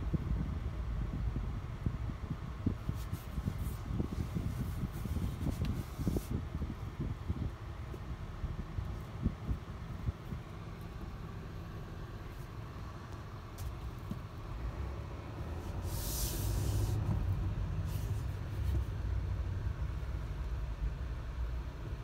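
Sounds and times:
truck engine rumble: 0.0 - 22.0
brief hiss: 15.6 - 17.0.

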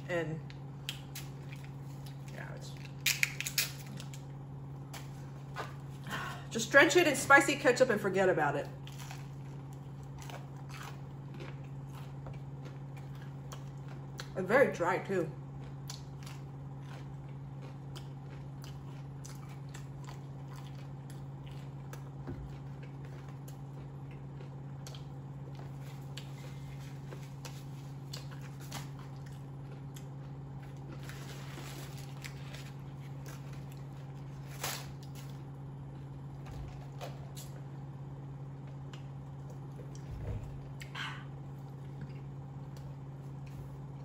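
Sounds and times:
low hum: 0.0 - 44.0
chewing and biting food: 8.7 - 14.4, 15.4 - 37.8.

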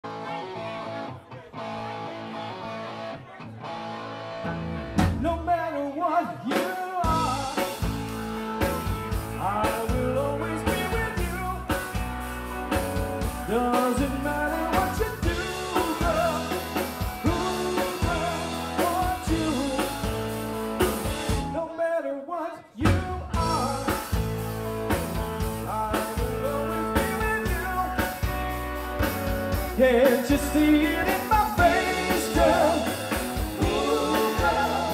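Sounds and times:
live rock band playing: 0.0 - 21.6, 22.8 - 34.9
lead vocal singing: 9.3 - 11.8, 13.4 - 20.2, 29.7 - 34.9.

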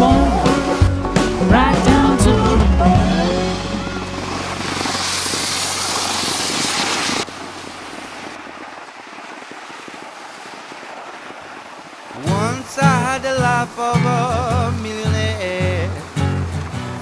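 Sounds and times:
blues song: 0.0 - 5.8, 12.2 - 17.0
sliding over packed snow: 0.0 - 17.0.

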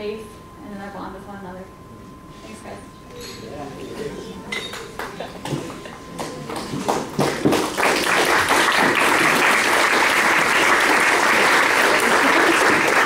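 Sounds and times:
guests applauding: 4.8 - 13.0.

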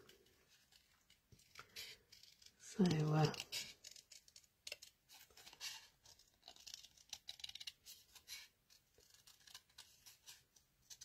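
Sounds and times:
scissors snipping cardstock: 2.2 - 5.0.

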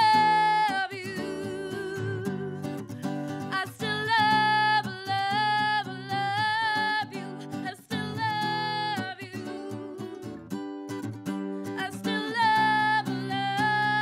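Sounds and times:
woman singing: 0.0 - 10.6, 11.4 - 14.0
strummed acoustic guitar: 0.0 - 14.0.

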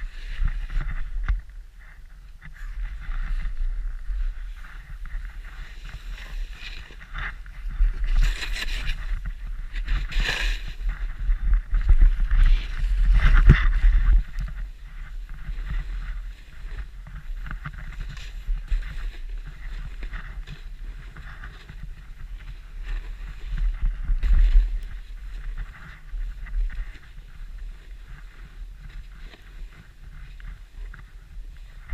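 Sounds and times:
wind buffeting microphone: 0.0 - 31.9
skis hissing through powder snow: 4.2 - 7.3, 8.0 - 11.2.

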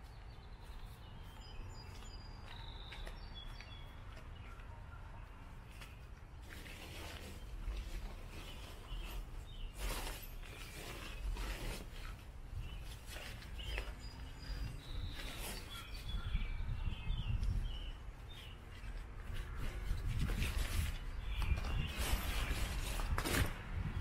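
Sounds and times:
bird chirps: 0.0 - 6.1, 7.2 - 11.5, 12.6 - 19.0, 20.8 - 22.8
tent fabric rustling: 6.4 - 16.1.

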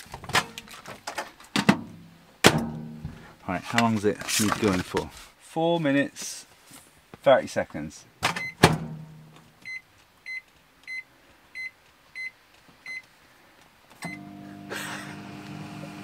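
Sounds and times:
microwave oven humming: 14.0 - 16.0.

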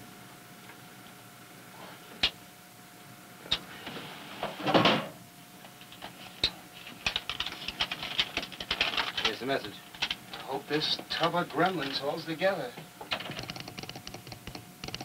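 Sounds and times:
faint steady hum: 0.0 - 15.0
rapid irregular clicking: 5.7 - 12.0, 13.0 - 15.0.

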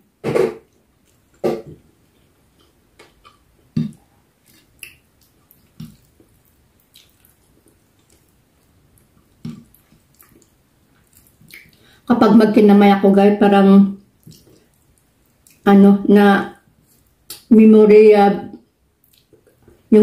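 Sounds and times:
person chewing and smacking: 0.7 - 11.9, 14.0 - 15.6, 16.8 - 17.5, 19.0 - 19.8.

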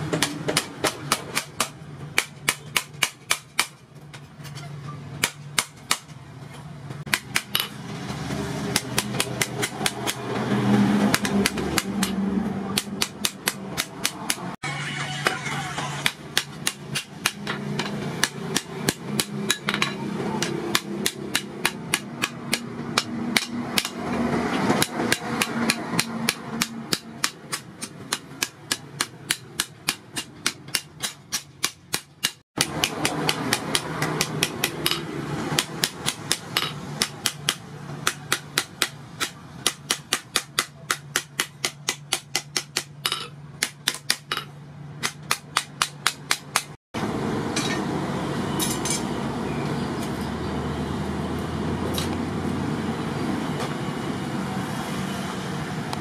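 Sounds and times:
hammer striking hot steel on anvil: 16.0 - 46.8.

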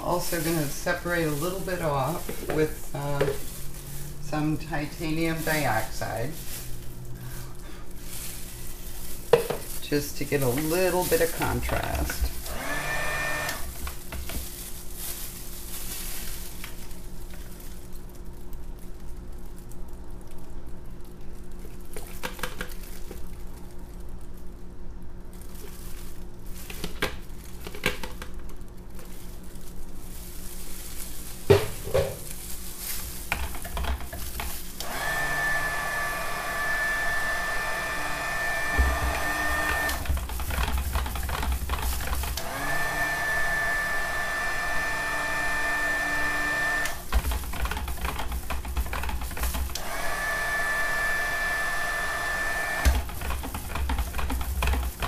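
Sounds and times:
electric stick blender whining: 9.9 - 14.0, 34.8 - 55.0.

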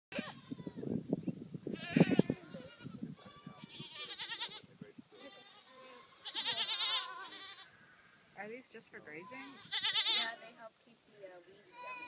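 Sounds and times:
goats bleating: 1.8 - 8.2, 9.1 - 10.6, 11.7 - 12.0.

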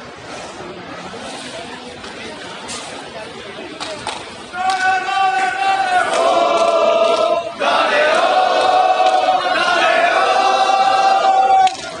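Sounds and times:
crowd chanting in unison: 4.7 - 11.5.

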